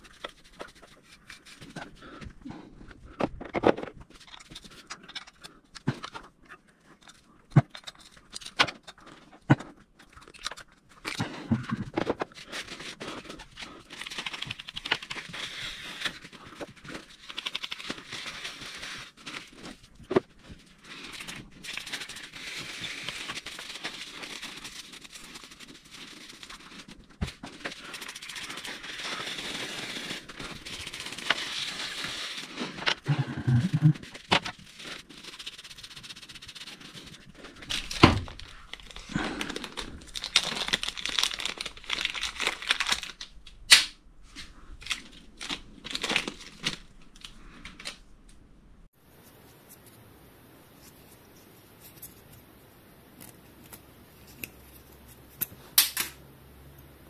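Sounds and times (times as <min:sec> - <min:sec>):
paper towel rubbing brake rotor: 0:20.7 - 0:33.1, 0:33.7 - 0:37.7.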